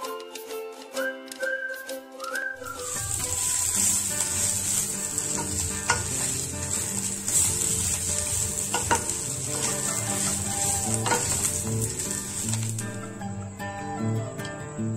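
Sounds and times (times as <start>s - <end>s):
food sizzling in hot oil: 2.6s - 13.4s
wooden spatula scraping a pan: 2.8s - 13.1s.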